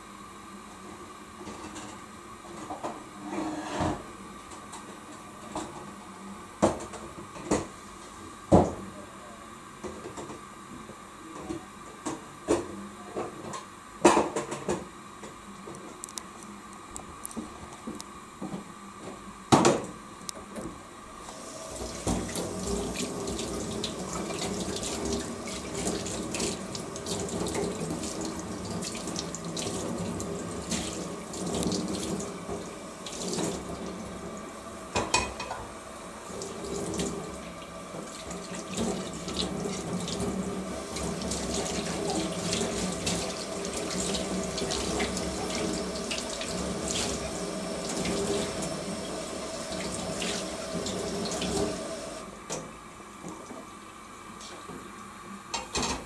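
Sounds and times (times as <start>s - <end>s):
water boiling in a pot: 21.2s - 55.6s.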